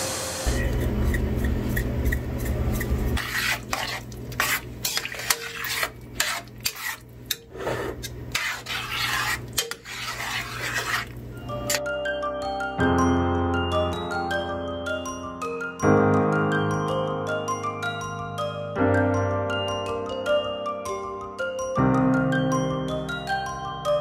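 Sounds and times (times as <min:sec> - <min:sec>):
spoon scraping a steel pot: 0:00.6 - 0:11.8
bell-like music: 0:11.4 - 0:24.0.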